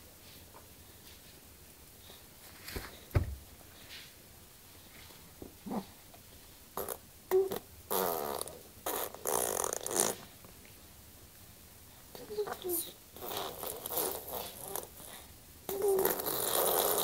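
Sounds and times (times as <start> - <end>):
baby blowing raspberries: 6.8 - 10.3, 12.3 - 17.0.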